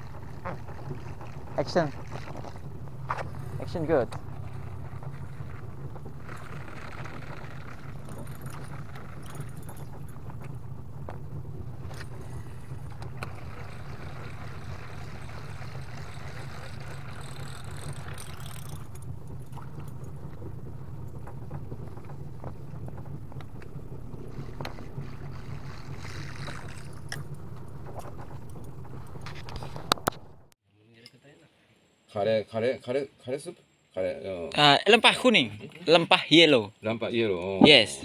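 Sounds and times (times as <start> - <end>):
boat engine humming: 0.0 - 30.6.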